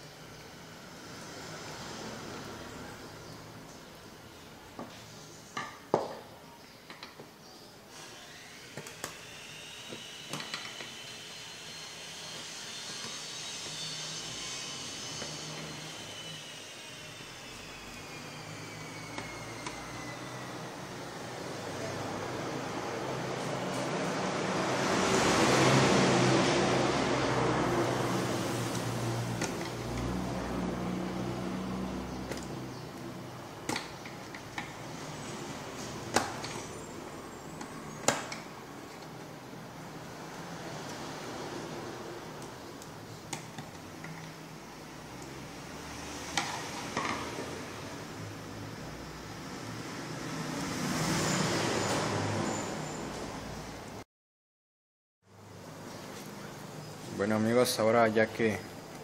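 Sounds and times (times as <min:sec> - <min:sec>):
machine hiss with high whine: 0:07.6 - 0:38.7.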